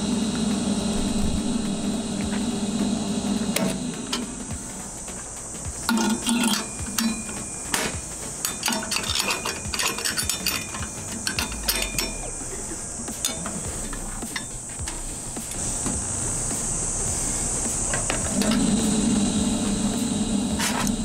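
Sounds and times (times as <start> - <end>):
insects buzzing: 0.0 - 21.0
metal clinks and knocks: 5.1 - 12.6.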